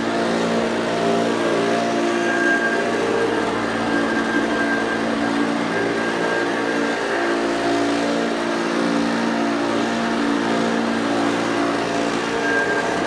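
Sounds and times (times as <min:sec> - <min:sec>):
vacuum cleaner running: 0:00.0 - 0:13.0.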